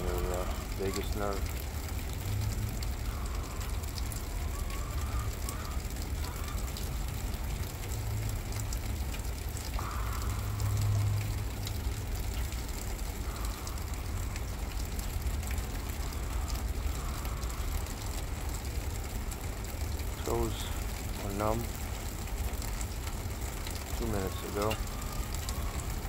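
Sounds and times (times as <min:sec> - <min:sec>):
faint ticks: 0:00.0 - 0:26.0.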